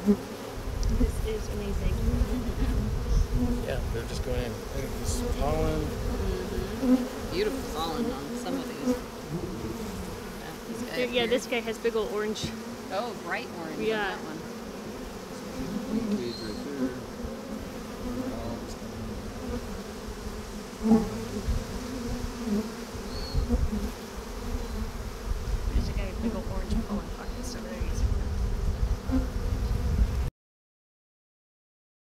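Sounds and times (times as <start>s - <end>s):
bees buzzing: 0.0s - 30.2s
low rumbles: 0.8s - 6.7s.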